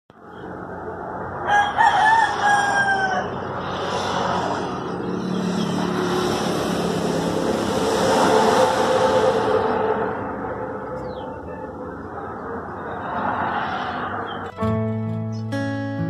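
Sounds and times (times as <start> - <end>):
outdoor background noise: 0.1 - 16.0
rooster crowing: 1.4 - 3.7
motorcycle engine passing: 3.2 - 11.4.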